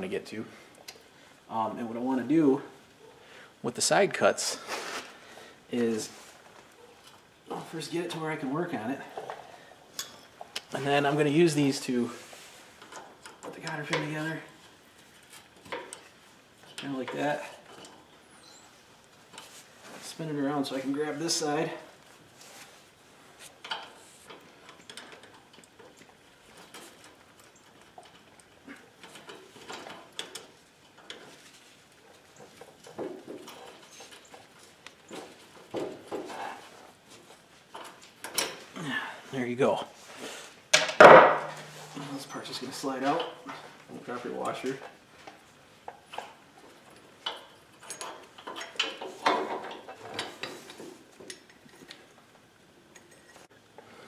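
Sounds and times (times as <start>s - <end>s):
cloth rustling near microphone: 4.6s - 5.2s
metal clinks knocks and scrapes: 23.6s - 38.7s, 40.7s - 52.2s.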